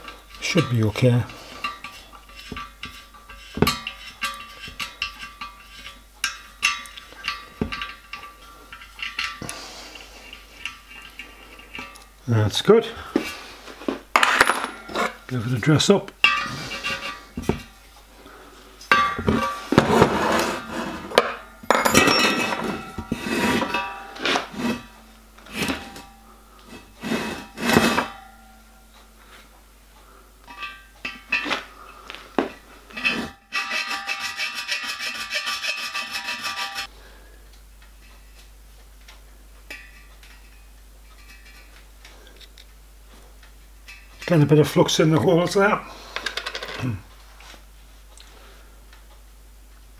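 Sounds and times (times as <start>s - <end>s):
metallic scraping with ring: 0.3s - 9.5s, 18.9s - 29.5s, 32.9s - 36.9s
hand file rasping on metal: 33.0s - 36.9s.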